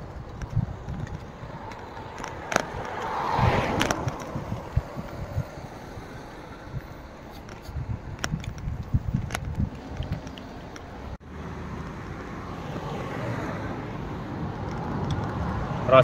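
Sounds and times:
wind rumble on microphone: 0.0 - 11.2
car passing: 0.0 - 16.0.

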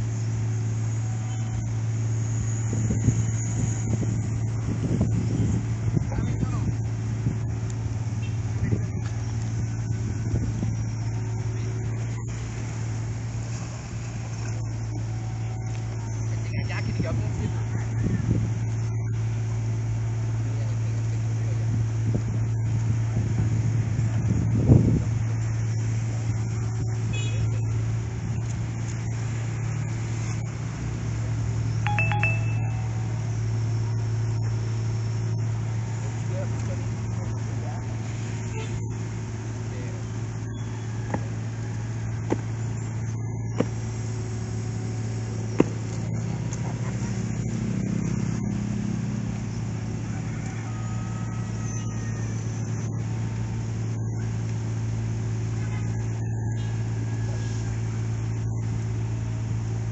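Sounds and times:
diesel engine running: 0.0 - 59.9
excavator engine humming: 25.1 - 50.7
short electronic beeps: 31.9 - 33.2.

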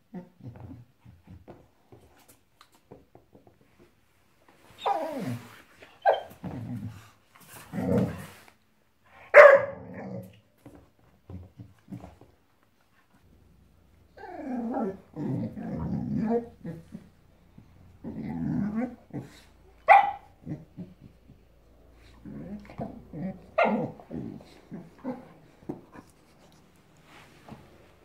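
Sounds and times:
puppy barking: 9.3 - 9.9, 19.8 - 20.4, 23.6 - 24.0
puppy growling: 14.0 - 26.6.

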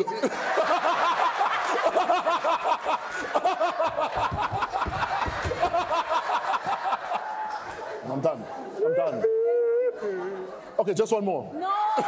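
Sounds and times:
audience laughing: 0.0 - 9.2.

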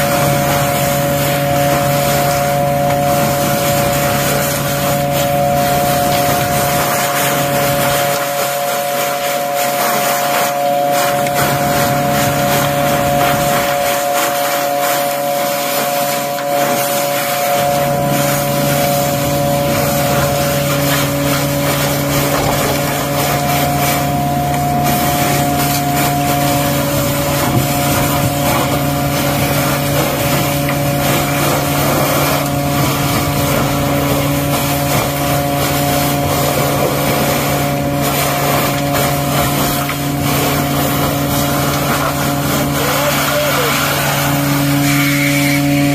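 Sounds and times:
machine hum: 0.0 - 45.9
suction hose rushing: 0.0 - 45.9.

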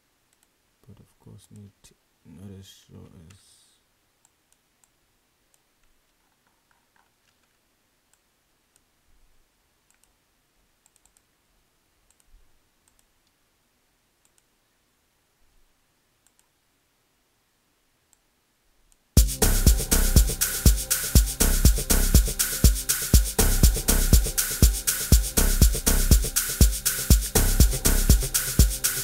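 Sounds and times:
computer mouse clicks: 0.3 - 0.6, 4.2 - 8.9, 9.8 - 10.2, 10.8 - 11.3, 12.1 - 13.4, 14.2 - 14.5, 16.2 - 16.6
house music beat with drums: 19.2 - 29.0.

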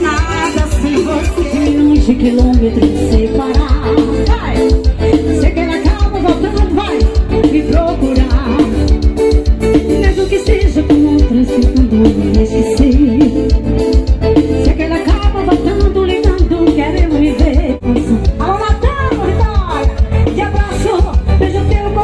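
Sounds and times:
person singing over a beat: 0.0 - 9.0.

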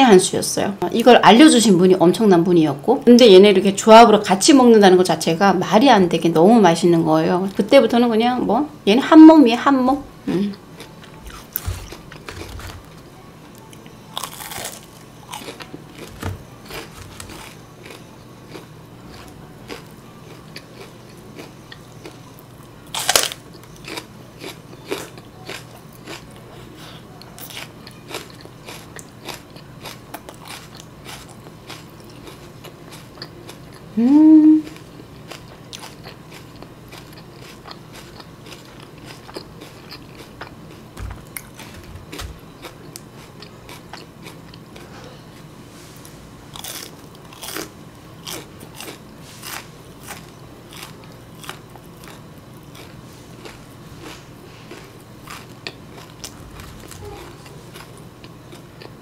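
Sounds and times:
crunching and chewing fried chicken: 10.6 - 13.0, 13.6 - 34.0, 34.6 - 45.6, 46.5 - 59.0
person humming: 34.0 - 34.8.

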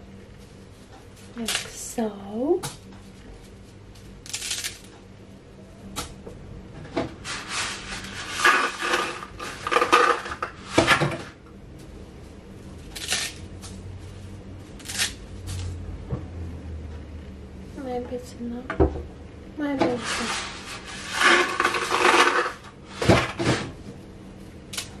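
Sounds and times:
dry spaghetti snapping: 4.0 - 5.0, 12.9 - 13.8, 14.8 - 15.7, 24.7 - 25.0
pasta rattling in cardboard box: 7.7 - 10.5, 21.0 - 22.6.

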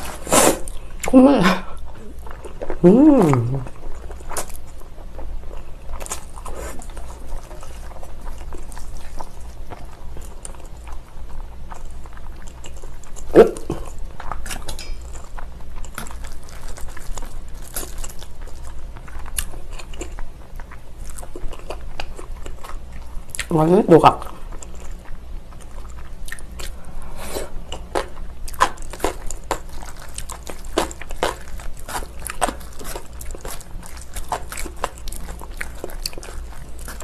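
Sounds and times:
wet chewing and slurping: 1.9 - 23.5, 24.4 - 37.0.

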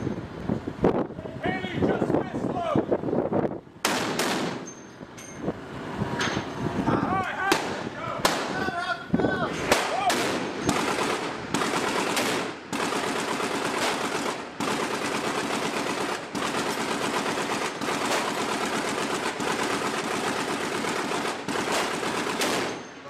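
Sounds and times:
machine gun firing rapid bursts: 9.7 - 22.9.

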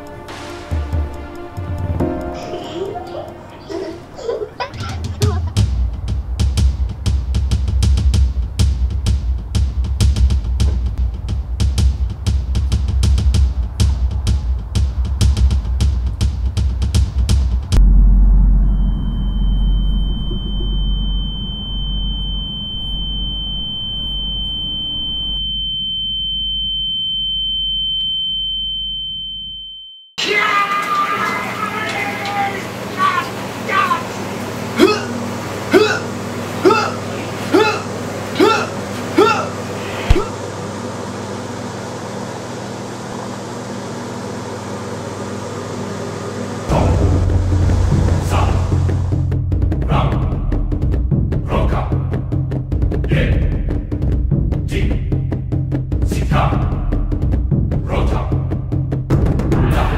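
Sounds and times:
loud deep music: 0.0 - 22.4, 46.6 - 59.9
deep low rumble: 11.0 - 26.0, 46.7 - 59.9
high-pitched ringing tone: 17.8 - 30.2.

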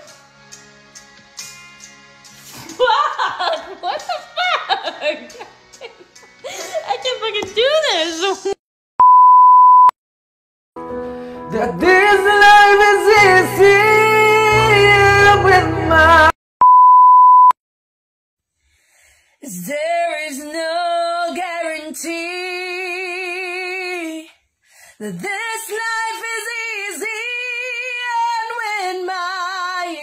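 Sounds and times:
test tone beep: 9.0 - 9.9, 16.6 - 17.5
person singing over backing music: 11.4 - 16.3
woman singing with vibrato: 19.4 - 24.3, 25.0 - 30.0.

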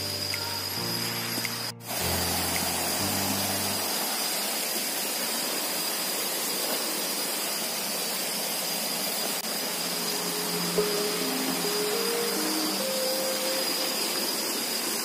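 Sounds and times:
low sustained music notes: 0.0 - 4.3, 9.5 - 15.0
waterfall rushing: 0.0 - 15.0.

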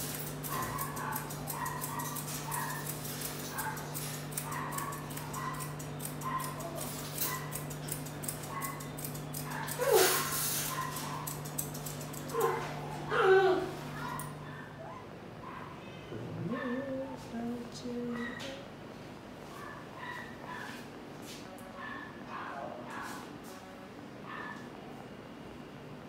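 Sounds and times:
grooming scissors snipping: 0.0 - 13.0
dog whimpering: 9.8 - 10.5, 12.3 - 13.9.

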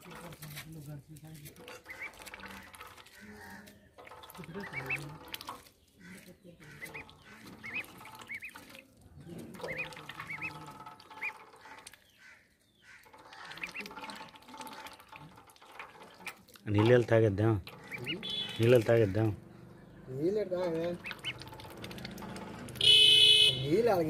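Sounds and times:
bill dabbling in water: 1.4 - 24.0
duckling peeping: 1.8 - 8.8, 9.4 - 14.9, 17.6 - 20.0, 20.8 - 23.4.

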